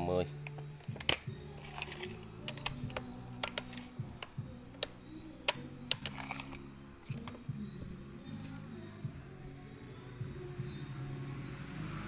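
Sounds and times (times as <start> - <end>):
plastic clicks and taps from handling: 0.4 - 7.4.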